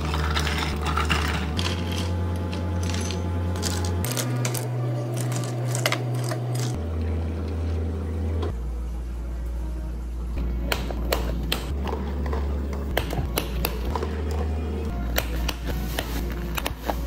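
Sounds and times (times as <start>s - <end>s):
ice cubes clinking in metal scoop: 0.0s - 2.1s.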